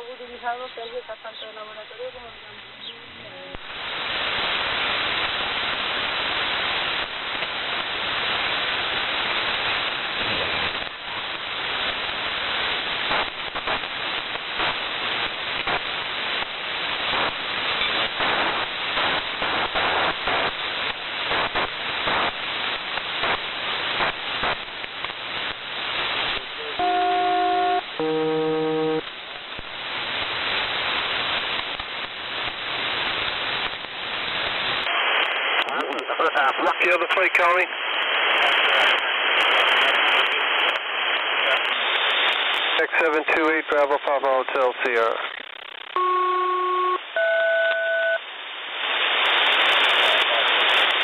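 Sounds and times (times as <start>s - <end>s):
radio hiss with crackling static: 0.0s - 51.0s
steady multi-tone signals: 26.2s - 29.6s, 42.7s - 48.2s.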